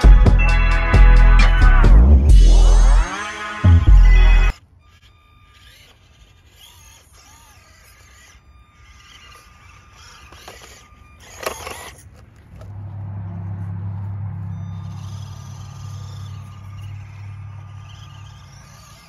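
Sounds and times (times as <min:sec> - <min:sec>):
low steady hum: 0:00.0 - 0:19.0
toy car clattering off wooden beam: 0:04.5 - 0:12.8, 0:14.6 - 0:19.0.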